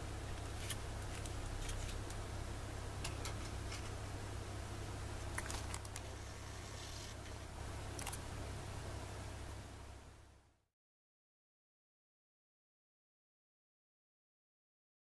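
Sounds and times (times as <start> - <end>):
steady low hum: 0.0 - 10.7.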